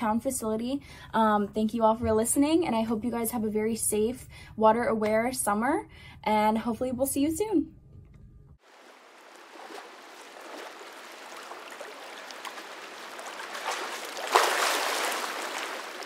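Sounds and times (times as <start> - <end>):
rush of water: 8.6 - 16.0
water lapping and trickling: 8.6 - 16.0.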